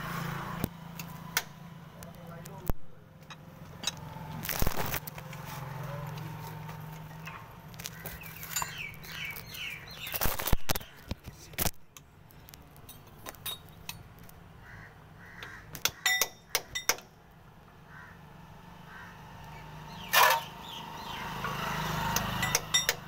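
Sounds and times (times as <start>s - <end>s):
birds calling: 7.1s - 13.2s, 14.5s - 16.9s, 17.8s - 23.0s
wrench clinking on bolts: 8.4s - 8.8s, 12.8s - 14.1s, 16.0s - 17.1s, 22.4s - 23.0s.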